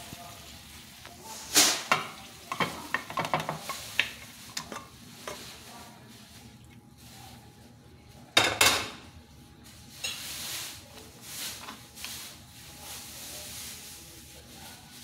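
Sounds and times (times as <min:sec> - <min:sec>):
utensils clattering on ceramic plate: 0:01.6 - 0:05.6.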